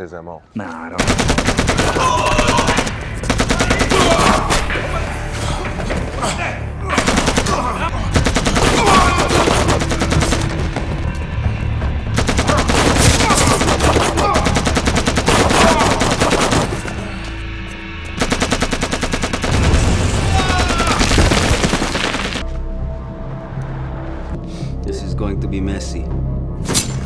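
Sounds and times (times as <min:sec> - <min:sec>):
rapid automatic gunfire: 0:01.0 - 0:04.3, 0:07.0 - 0:07.6, 0:08.2 - 0:10.5, 0:12.2 - 0:16.7, 0:18.2 - 0:19.9.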